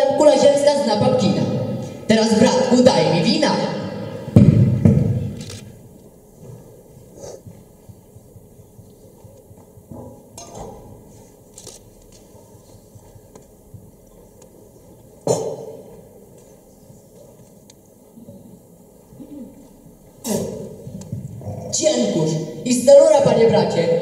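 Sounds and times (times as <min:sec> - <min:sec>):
loud knock: 0:04.3 - 0:05.3
footsteps on stage floor: 0:06.0 - 0:18.5, 0:19.6 - 0:21.4.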